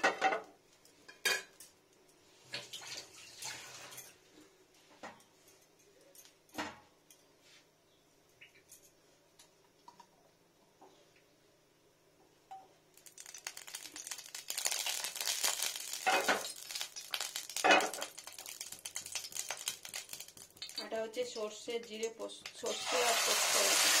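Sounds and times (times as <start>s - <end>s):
hot oil sizzling in a frying pan: 13.0s - 24.0s.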